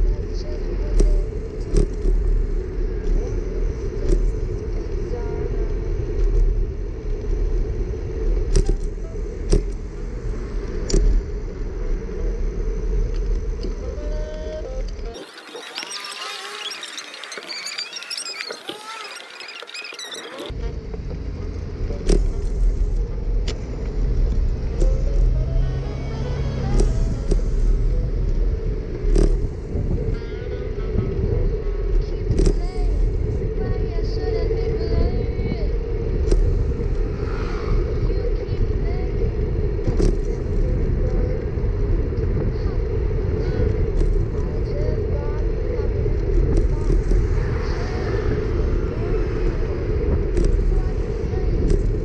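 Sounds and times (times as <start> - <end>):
bicycle tyres on road: 0.0 - 52.0
city traffic: 0.0 - 52.0
bus passing: 15.2 - 52.0
wind on microphone: 26.3 - 52.0.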